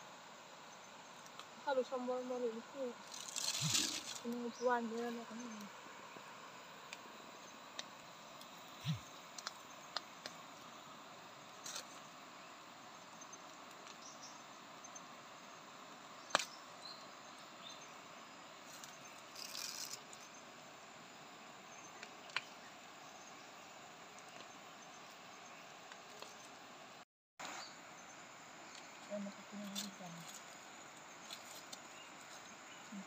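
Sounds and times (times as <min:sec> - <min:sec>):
faint forest ambience: 0:00.0 - 0:33.0
rustle of dry leaves: 0:00.0 - 0:33.0
sharp snaps and clicks: 0:07.8 - 0:10.4, 0:16.3 - 0:16.6.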